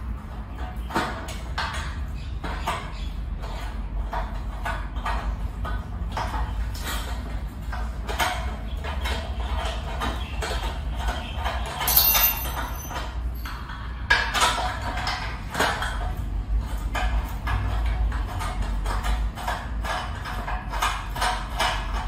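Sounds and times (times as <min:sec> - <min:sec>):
loud metal clank: 0:11.8 - 0:13.1
metal clinks on steel tubes: 0:11.8 - 0:13.9.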